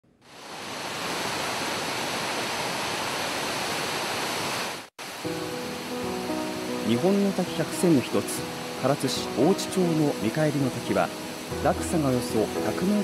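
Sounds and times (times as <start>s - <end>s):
waterfall roaring: 0.2s - 13.0s
background music with held notes: 5.2s - 13.0s.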